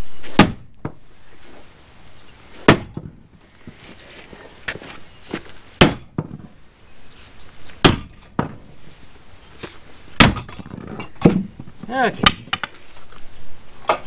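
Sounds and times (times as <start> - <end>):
sledgehammer striking wood: 0.3 - 1.0, 2.6 - 3.2, 5.8 - 6.5, 7.8 - 8.6, 10.2 - 12.7.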